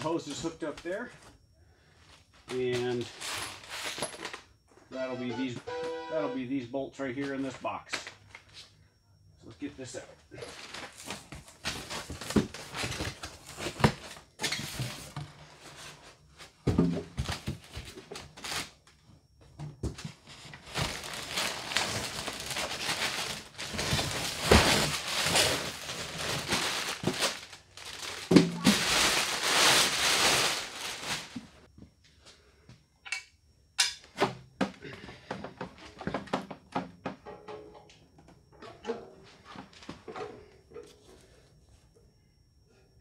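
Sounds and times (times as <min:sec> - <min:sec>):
packaging rustling and crinkling: 0:10.4 - 0:16.1, 0:20.0 - 0:31.7.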